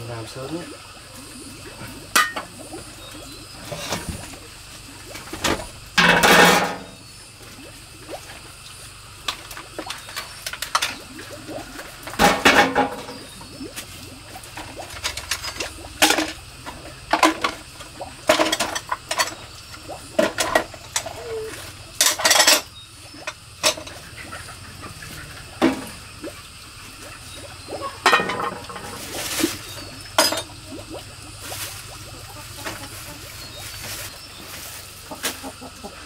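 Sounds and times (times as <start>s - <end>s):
dishes knocking and clinking: 2.2s - 2.5s, 6.0s - 6.9s, 12.2s - 13.2s, 28.0s - 28.9s, 30.2s - 30.5s.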